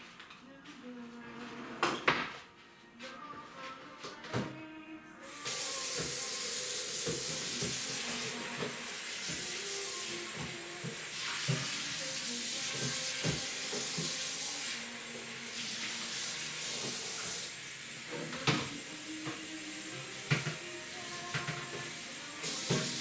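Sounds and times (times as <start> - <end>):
tap running into sink: 5.4 - 14.5, 18.1 - 19.6, 20.3 - 23.0
dishes and pans clinking: 21.3 - 21.9.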